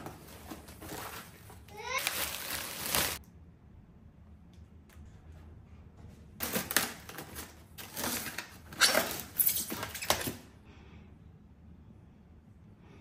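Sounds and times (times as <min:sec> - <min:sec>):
foam scraping and rustling: 0:02.0 - 0:03.2.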